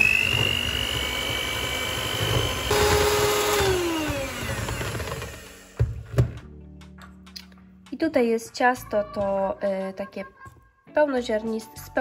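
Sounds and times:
electric hand mixer whining: 0.0 - 6.0.

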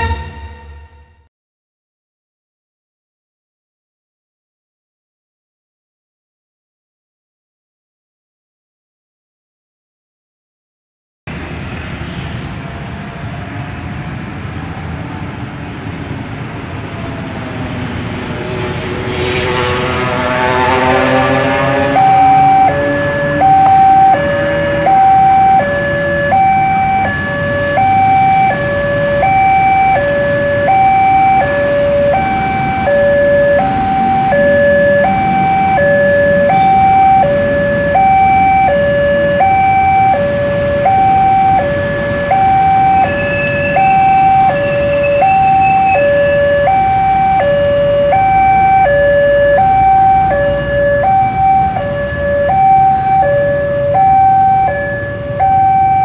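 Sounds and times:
two-tone crossing alarm: 0.0 - 1.2, 16.7 - 56.0
road traffic: 0.0 - 1.3, 11.3 - 56.0.

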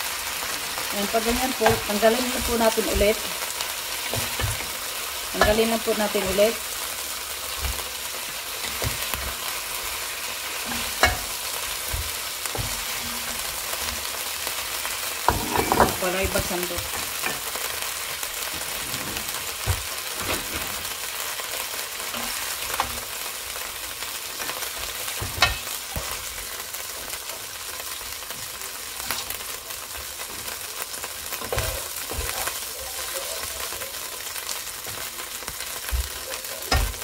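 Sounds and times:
chicken frying in oil: 0.0 - 37.0
spoon knocking against pot: 10.7 - 11.3.

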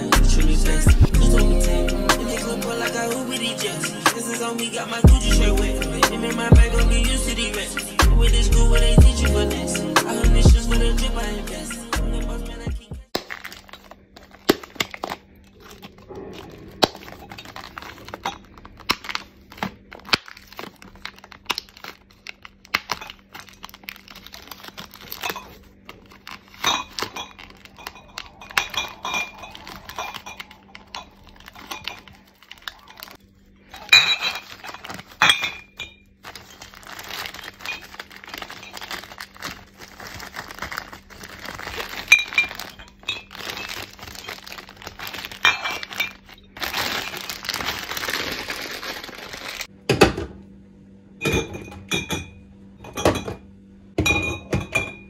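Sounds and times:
plastic shrink-wrap crinkling and tearing: 13.1 - 49.7
glass bottles clinking: 26.6 - 32.1, 33.8 - 36.0, 42.0 - 44.6, 45.4 - 46.3, 51.2 - 53.4, 54.0 - 55.0.

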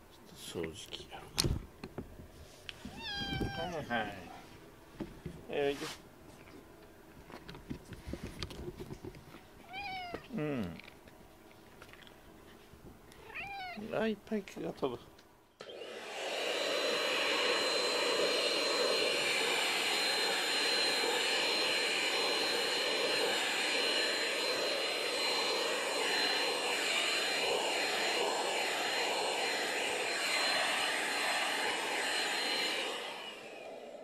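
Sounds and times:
vacuum cleaner whining: 2.8 - 4.3, 15.6 - 34.0.

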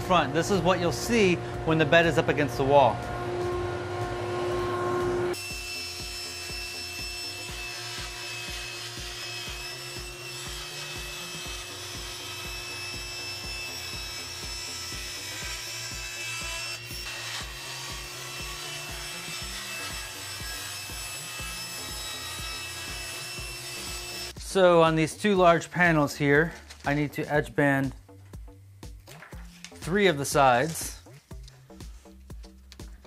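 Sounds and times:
saw motor humming: 0.0 - 24.4
table saw cutting plywood: 0.1 - 24.4.

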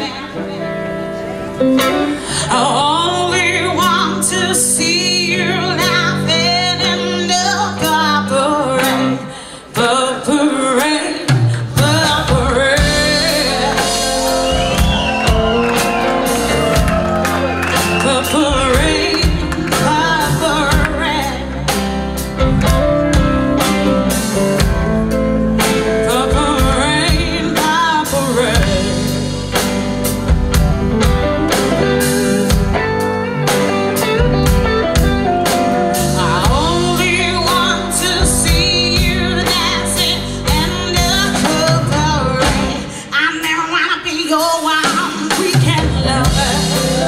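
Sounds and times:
woman singing: 0.0 - 0.7, 1.8 - 23.9, 25.6 - 29.3, 35.0 - 47.0
electric guitars: 0.0 - 9.8, 11.2 - 43.2, 44.8 - 47.0
drum kit: 10.8 - 47.0.

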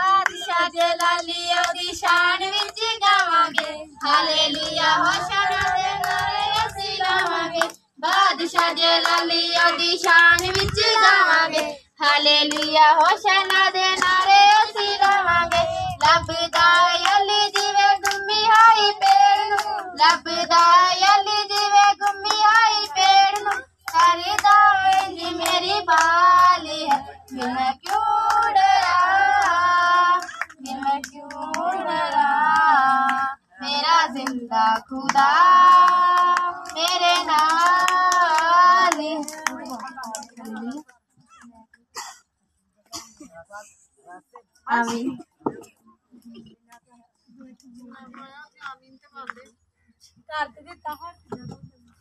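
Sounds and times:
child singing: 0.0 - 40.8
hands clapping along: 0.0 - 41.9.

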